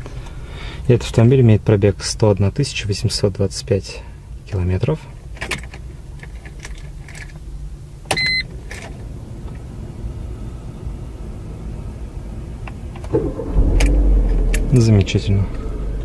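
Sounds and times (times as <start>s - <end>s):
low steady hum: 5.9s - 16.0s.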